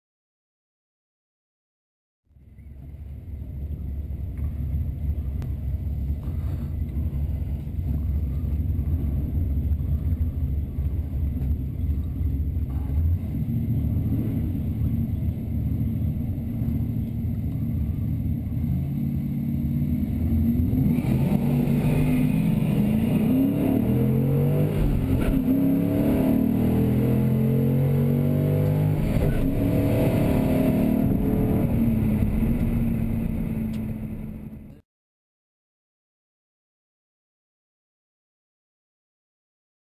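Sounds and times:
car engine idling: 2.3 - 20.9, 28.6 - 34.8
car engine revving at full throttle: 3.0 - 34.8.

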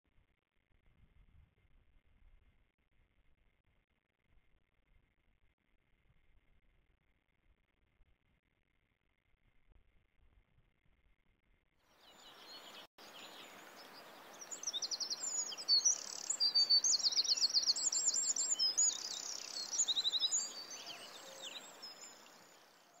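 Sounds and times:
songbirds trilling and chirping: 12.0 - 23.0
steady outdoor hiss: 12.0 - 23.0.

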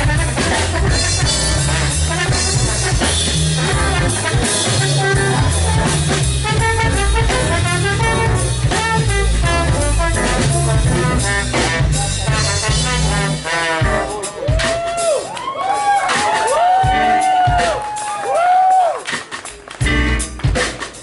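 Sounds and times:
trombone playing lead line: 0.0 - 14.4
drum kit hitting sharply: 0.0 - 15.2.

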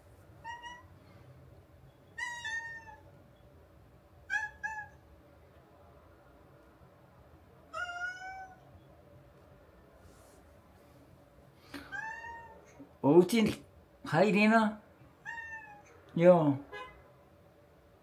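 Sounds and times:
cat meowing: 0.4 - 0.9, 2.1 - 3.1, 4.2 - 5.0, 7.7 - 8.7, 11.8 - 12.8, 15.2 - 16.0.

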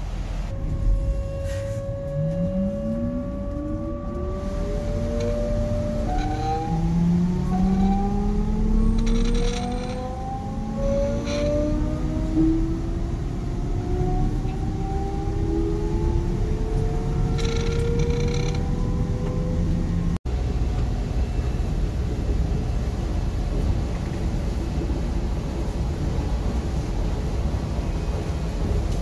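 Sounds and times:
low rumble of train running: 0.0 - 29.0
electric train motor whine: 0.5 - 20.2
high squeals: 0.8 - 12.2.

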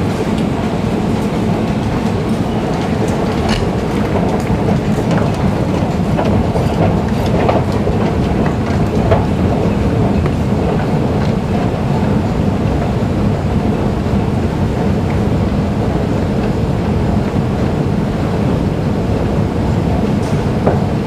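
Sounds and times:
escalator rumbling: 0.0 - 21.0.

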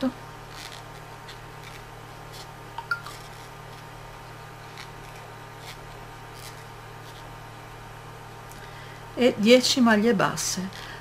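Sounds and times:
steady low hum: 0.0 - 11.0
crochet hook working yarn: 0.4 - 7.4.

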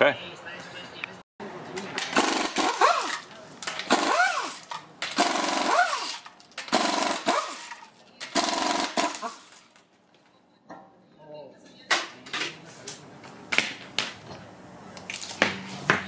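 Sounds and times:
pneumatic impact wrench hammering: 2.0 - 9.5.

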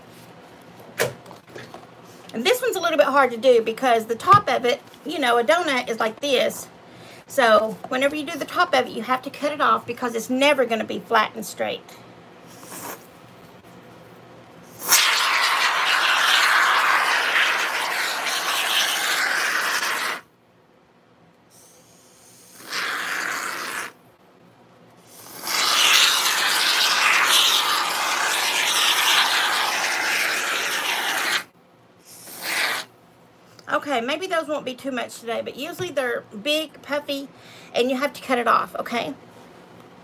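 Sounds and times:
spray foam can hissing: 14.8 - 20.2, 25.1 - 31.5.

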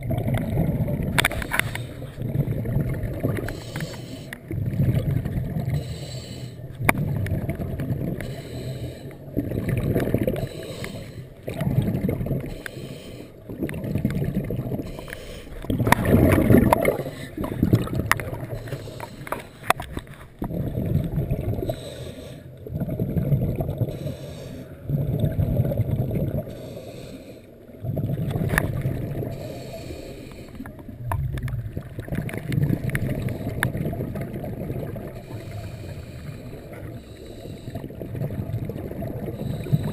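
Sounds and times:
exhaled bubbles underwater: 0.0 - 39.9
diver breathing through regulator: 1.3 - 2.3, 3.4 - 4.5, 5.6 - 6.8, 8.2 - 9.4, 10.2 - 11.6, 12.4 - 13.5, 14.8 - 20.2, 21.6 - 22.6, 23.8 - 24.9, 26.4 - 27.6, 29.2 - 30.7, 35.1 - 38.0, 39.2 - 39.9.

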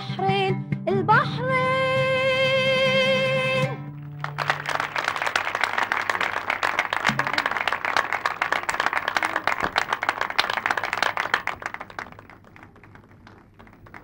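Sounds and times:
audience applause: 4.0 - 14.0.

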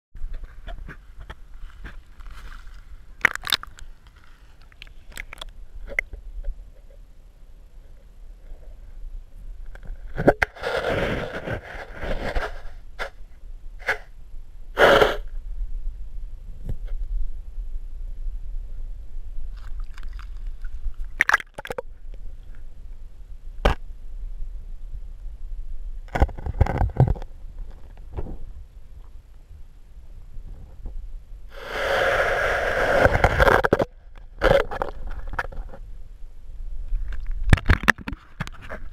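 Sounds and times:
camera bumping against rock: 37.1 - 38.9.

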